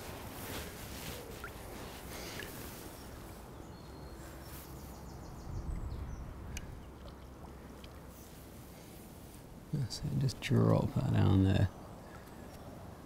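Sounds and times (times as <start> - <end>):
gently moving water: 0.0 - 3.5, 5.6 - 9.6.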